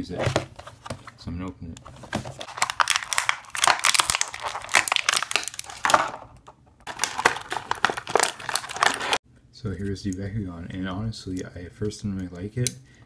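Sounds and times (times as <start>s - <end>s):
plastic packaging crinkling: 2.2s - 9.2s.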